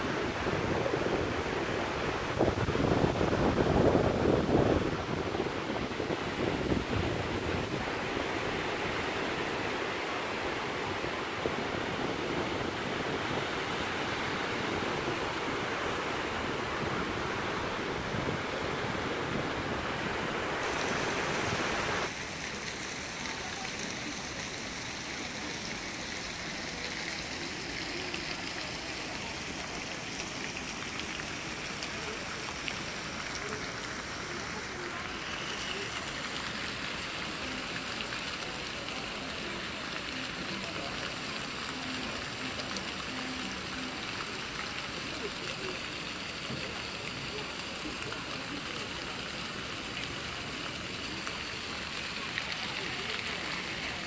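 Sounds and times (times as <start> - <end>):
wind on microphone: 0.0 - 9.0
fountain jets splashing water: 0.0 - 54.0
surf washing up beach: 0.0 - 54.0.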